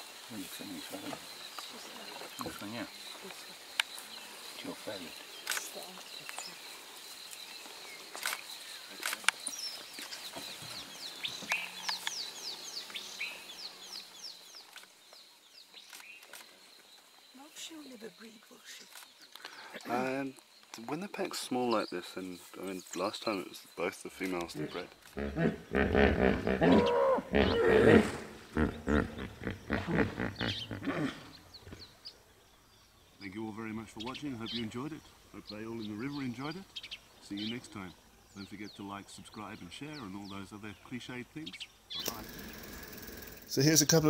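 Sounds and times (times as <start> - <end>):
deep animal calls: 24.5 - 32.0, 42.0 - 43.6
wild dogs twittering: 24.5 - 32.0, 41.9 - 43.6
sharp clicks: 42.0 - 43.4.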